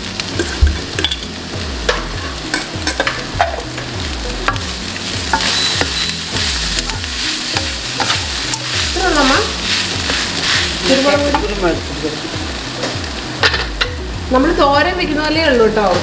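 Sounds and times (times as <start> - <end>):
frying sizzle: 0.0 - 16.0
wooden spatula scraping a wok: 5.2 - 11.6.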